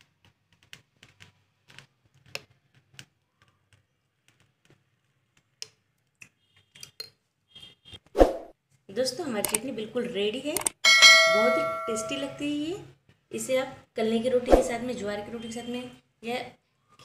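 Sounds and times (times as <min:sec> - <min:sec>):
faint metallic ring: 0:10.8 - 0:12.4.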